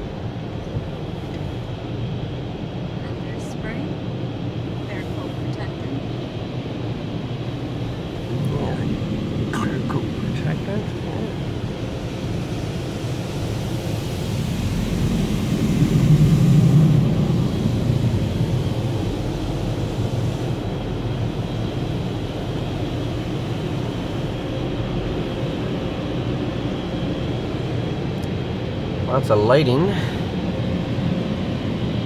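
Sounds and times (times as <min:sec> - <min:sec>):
car wash equipment rumbling: 0:00.0 - 0:32.0.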